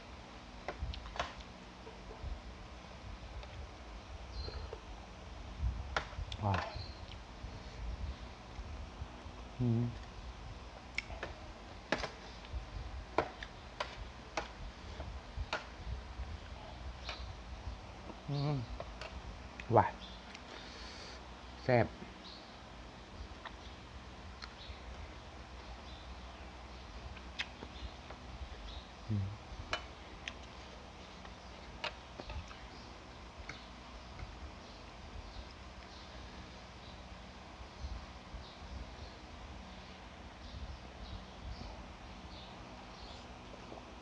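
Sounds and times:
chewing mouth clicks and smacks: 0:27.2 - 0:27.6.

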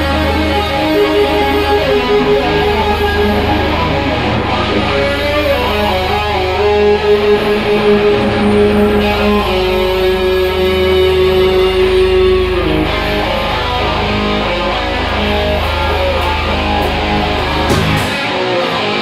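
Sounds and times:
bass guitar: 0:00.0 - 0:19.0
electric guitar long notes: 0:00.0 - 0:19.0
drums: 0:15.6 - 0:19.0.

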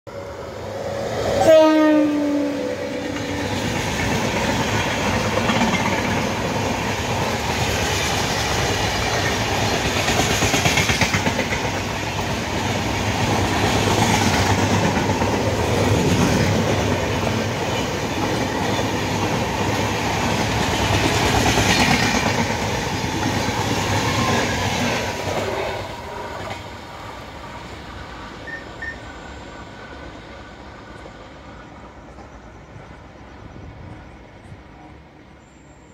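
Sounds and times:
train coaches rushing past: 0:00.1 - 0:35.9
train horn blast: 0:01.2 - 0:03.6.

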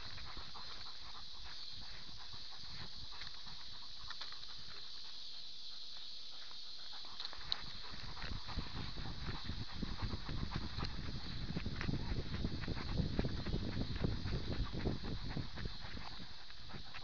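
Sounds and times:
dog paws on rocky trail: 0:00.0 - 0:17.0
steady hiss: 0:00.0 - 0:17.0.

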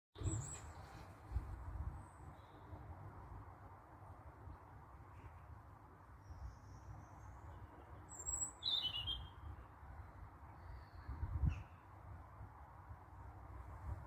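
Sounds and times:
robin singing: 0:06.2 - 0:09.5.

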